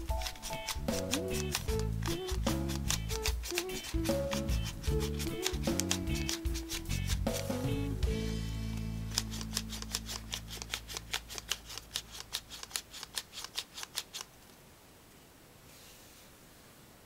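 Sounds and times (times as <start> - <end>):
paper wings clicking: 0.0 - 7.6, 9.1 - 14.4
background music chord: 3.8 - 10.0.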